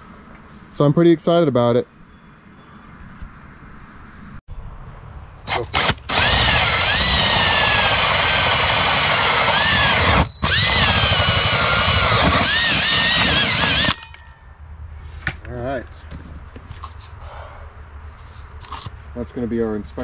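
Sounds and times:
power drill cutting plastic: 0:05.5 - 0:14.0.

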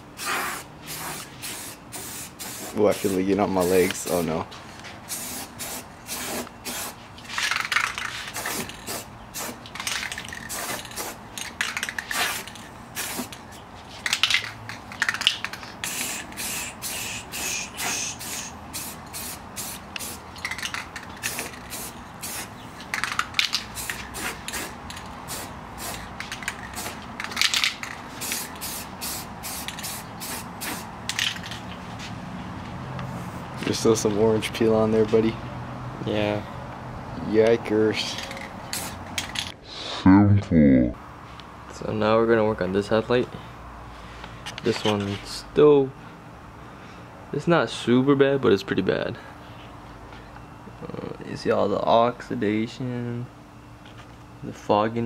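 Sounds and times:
aerosol spray bursts: 0:00.2 - 0:03.2, 0:05.1 - 0:07.0, 0:12.1 - 0:13.4, 0:15.8 - 0:20.2, 0:23.7 - 0:26.0, 0:28.2 - 0:30.9, 0:38.7 - 0:39.0.

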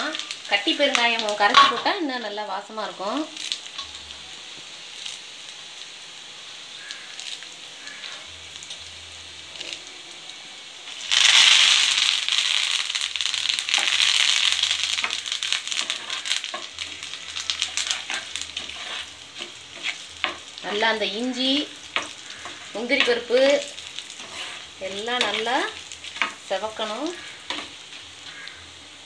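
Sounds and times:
hot oil crackling and spitting: 0:00.0 - 0:29.0
spices sizzling in ghee: 0:00.0 - 0:29.0
ladle stirring pan: 0:13.6 - 0:20.6, 0:21.4 - 0:28.5.

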